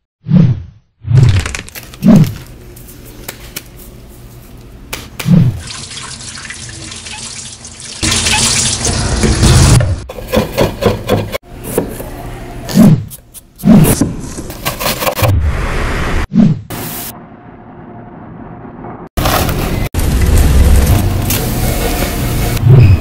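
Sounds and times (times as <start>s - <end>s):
tap water running: 5.6s - 9.4s.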